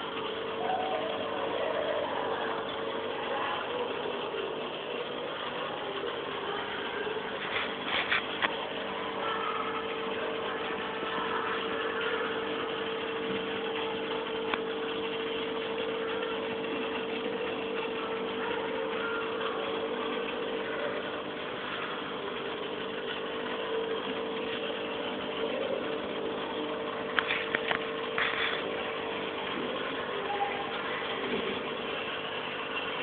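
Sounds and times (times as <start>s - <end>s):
aquarium pump humming: 0.0s - 33.0s.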